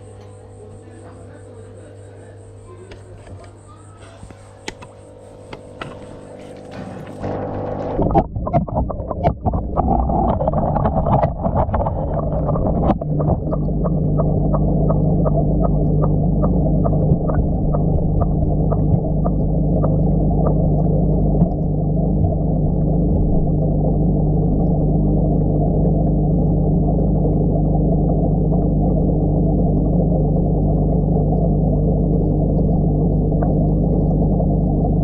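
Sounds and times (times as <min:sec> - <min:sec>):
underwater filter hum and bubbling: 0:00.0 - 0:35.0
knocks and clicks: 0:06.7 - 0:23.7.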